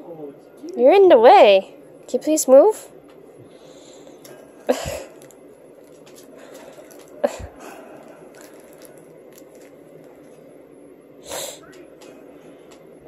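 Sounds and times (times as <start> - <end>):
rustling: 4.1 - 10.5.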